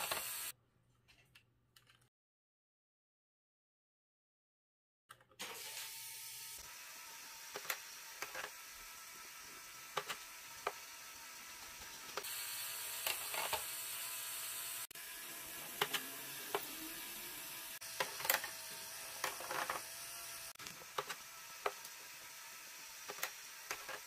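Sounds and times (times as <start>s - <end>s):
motor whirring: 5.4s - 24.0s.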